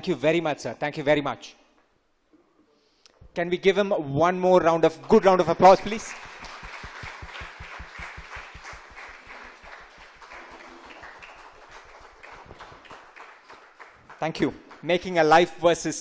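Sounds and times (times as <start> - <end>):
audience applauding: 5.6 - 15.5.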